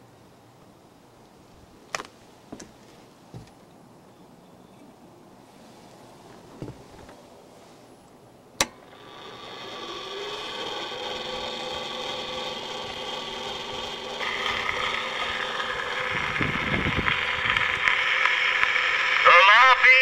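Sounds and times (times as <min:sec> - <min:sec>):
record surface hiss: 0:00.0 - 0:09.0, 0:14.7 - 0:20.0
phonograph motor whirring: 0:08.6 - 0:20.0.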